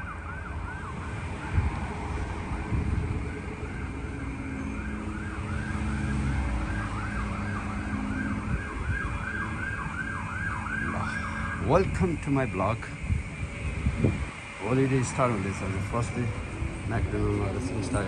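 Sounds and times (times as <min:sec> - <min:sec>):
emergency siren yelping: 0:00.0 - 0:18.0
low traffic rumble: 0:00.0 - 0:18.0.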